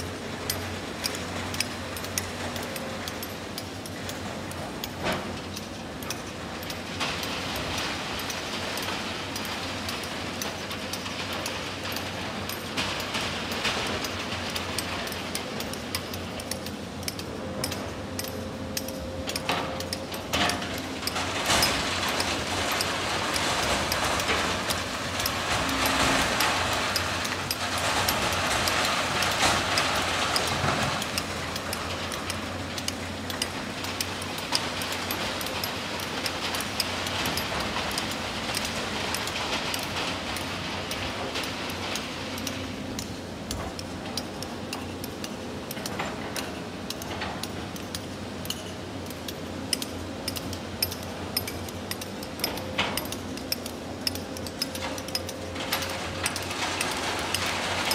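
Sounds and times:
excavator running: 0:00.0 - 0:57.9.

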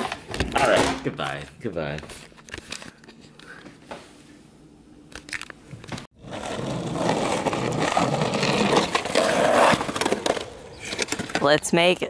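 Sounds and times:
skateboard wheels rolling on concrete: 0:06.1 - 0:12.0.

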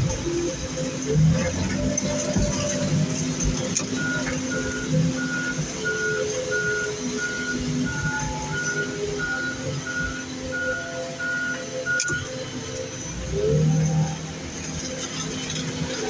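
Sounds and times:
loader engine running: 0:00.0 - 0:16.0
backup alarm beeping: 0:03.8 - 0:13.0.

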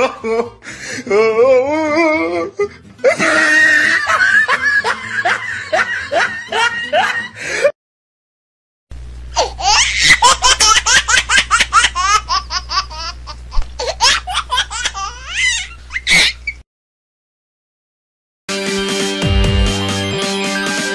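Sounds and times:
high-pitched laughter: 0:03.0 - 0:07.4, 0:09.4 - 0:13.2, 0:13.8 - 0:16.6
low hum: 0:08.9 - 0:09.4.

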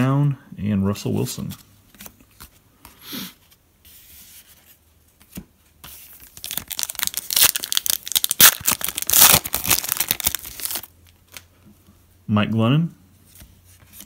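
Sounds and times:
foil wrapper crinkling and tearing: 0:06.2 - 0:11.5.

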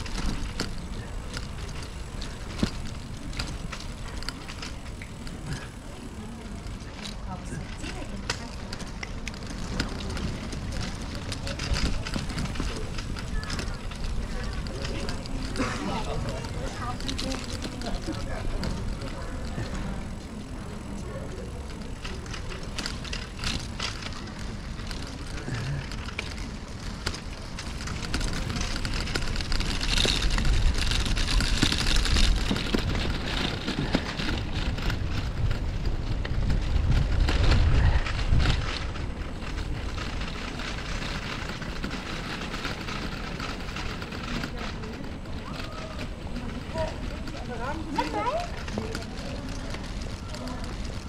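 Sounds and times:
bicycle rattles and clicks: 0:00.0 - 0:51.0
bicycle tyres rumbling on bricks: 0:00.0 - 0:51.0.

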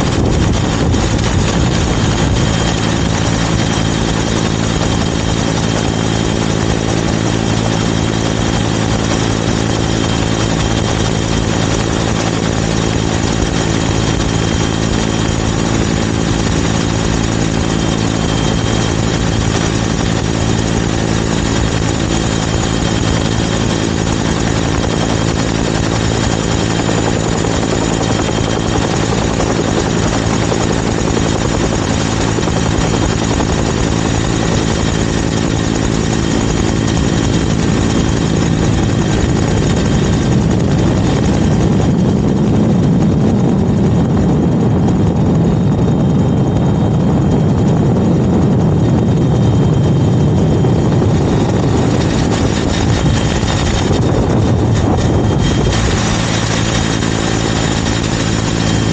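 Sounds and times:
helicopter engine and rotor: 0:00.0 - 0:58.9.

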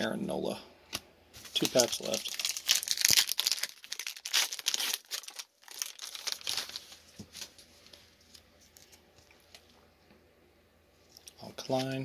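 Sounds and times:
foil wrapper tearing and crinkling: 0:01.5 - 0:07.0.

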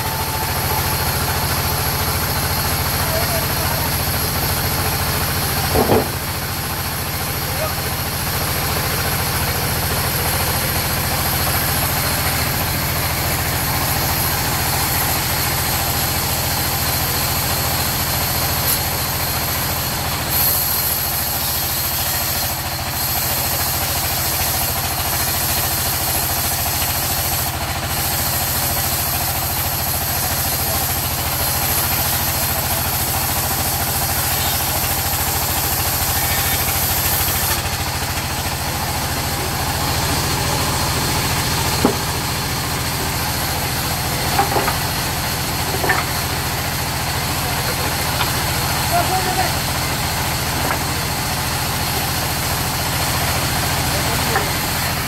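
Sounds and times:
band saw running: 0:00.0 - 0:55.0
sharp knock: 0:05.7 - 0:06.2
saw blade hissing through log: 0:08.0 - 0:55.0.

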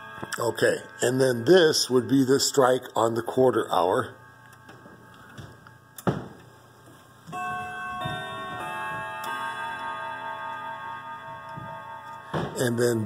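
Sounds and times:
wall clock chime notes: 0:00.0 - 0:05.3, 0:07.3 - 0:13.0.

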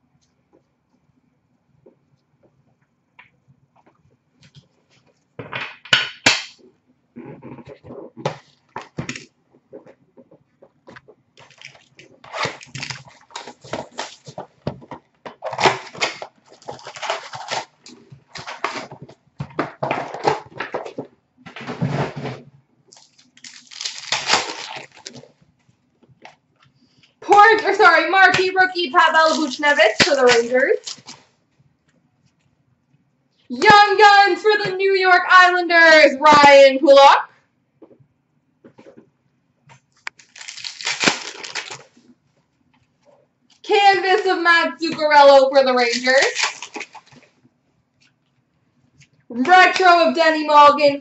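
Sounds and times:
card packs rustling and ripping: 0:11.4 - 0:19.1, 0:22.9 - 0:25.4, 0:29.1 - 0:31.3, 0:40.1 - 0:42.0, 0:45.8 - 0:47.3
cardboard box tearing: 0:15.6 - 0:17.8, 0:23.4 - 0:25.3, 0:40.2 - 0:41.8.

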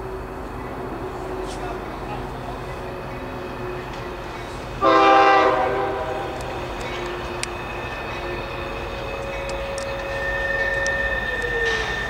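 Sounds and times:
low rumble of train: 0:00.0 - 0:12.0
locomotive air horn blast: 0:04.6 - 0:06.6.

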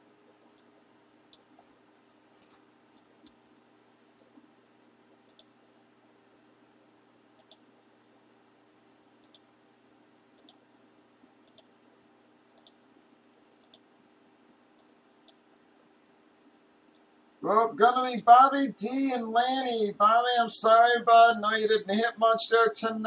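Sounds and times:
low steady hum: 0:00.0 - 0:23.0
computer mouse button clicks: 0:09.1 - 0:09.4, 0:13.6 - 0:13.8.

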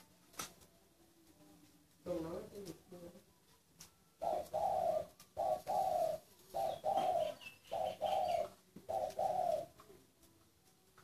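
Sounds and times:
dove cooing: 0:04.2 - 0:10.0.

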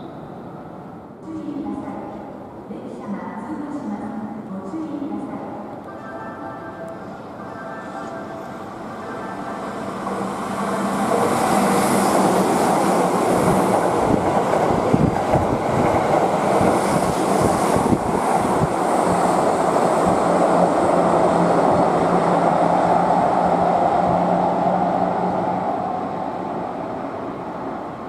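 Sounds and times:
train wheels on rails: 0:09.8 - 0:25.9.

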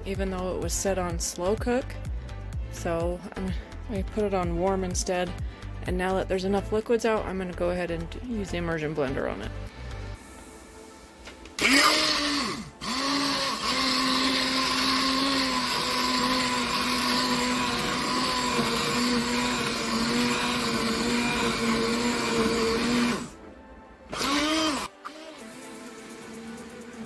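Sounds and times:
immersion blender motor whine: 0:11.6 - 0:23.4, 0:24.1 - 0:27.0.

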